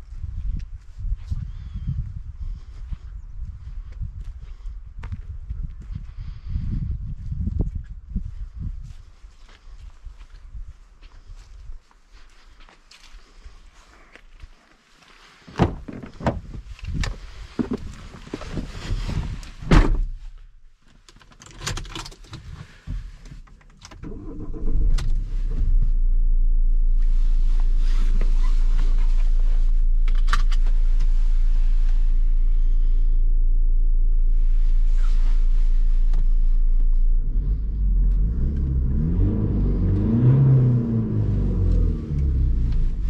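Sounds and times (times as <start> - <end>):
knocks and clunks: 15.5 - 18.5, 19.6 - 20.3
diesel engine starting and idling: 23.9 - 43.0.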